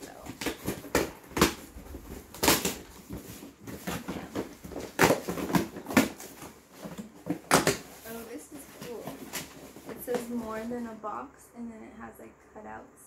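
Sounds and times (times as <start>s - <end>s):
package handling noise: 0.0s - 10.6s
cardboard tearing: 0.2s - 10.4s.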